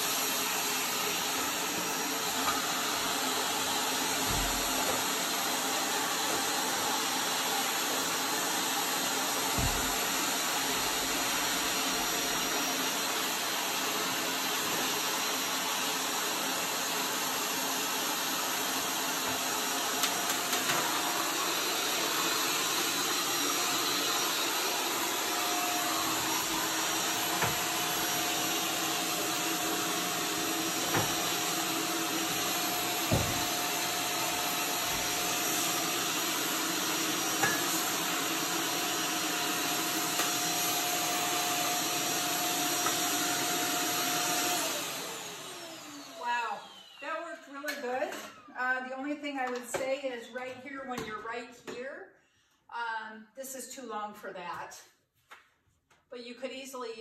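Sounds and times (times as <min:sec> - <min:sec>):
vacuum cleaner running: 0:00.0 - 0:49.9
vacuum tool knocking on surface: 0:04.1 - 0:05.1, 0:09.4 - 0:10.2, 0:26.9 - 0:27.8, 0:30.4 - 0:31.4, 0:32.3 - 0:33.6, 0:37.3 - 0:37.8.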